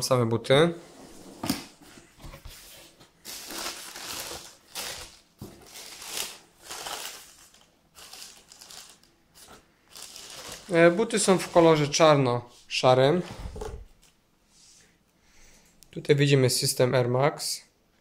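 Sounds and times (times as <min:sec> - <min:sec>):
tissue paper rustling: 0:02.6 - 0:12.0.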